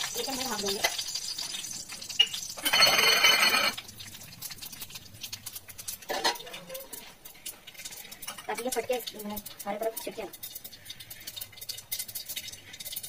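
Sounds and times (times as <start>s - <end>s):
seeds popping in oil: 0.0s - 13.0s
seeds sizzling in hot oil: 0.0s - 13.0s
metal lid clattering onto pan: 6.1s - 6.7s.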